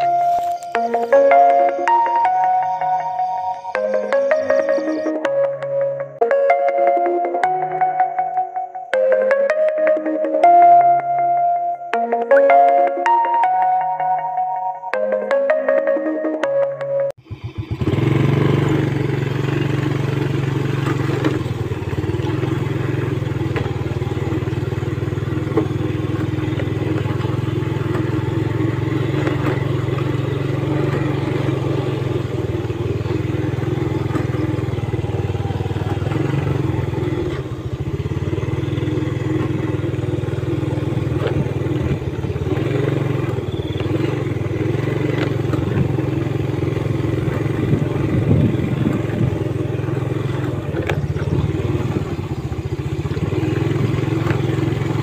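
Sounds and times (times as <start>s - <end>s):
motorcycle engine running: 17.1s - 55.0s.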